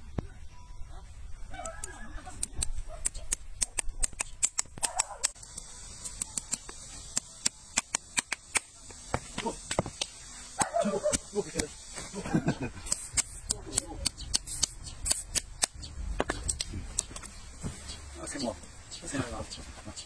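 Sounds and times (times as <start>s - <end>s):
hoof knife cutting hoof clicks: 1.6s - 8.7s, 12.8s - 17.3s.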